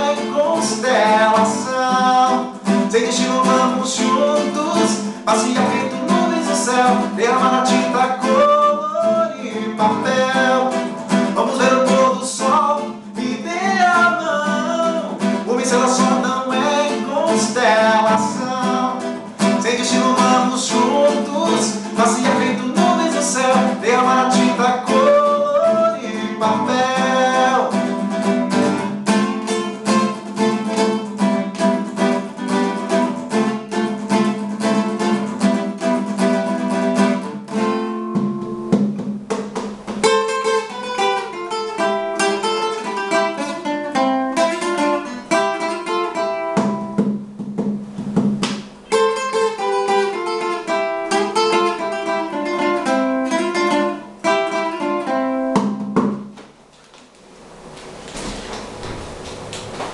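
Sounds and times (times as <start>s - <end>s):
acoustic guitar: 0.0s - 59.9s.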